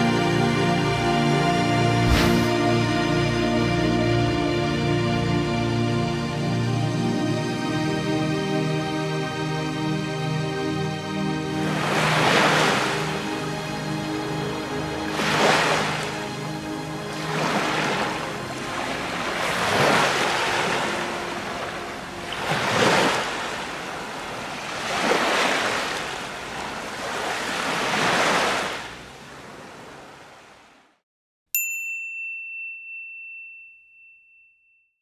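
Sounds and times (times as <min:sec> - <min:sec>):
sea waves washing in: 0:01.8 - 0:02.8, 0:11.6 - 0:30.8
bell-like ding: 0:31.6 - 0:35.0.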